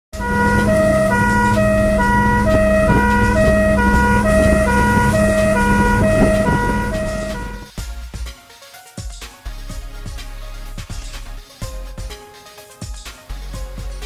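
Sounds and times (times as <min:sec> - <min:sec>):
engine and road hum: 0:00.2 - 0:07.7
two-tone siren: 0:00.2 - 0:07.7.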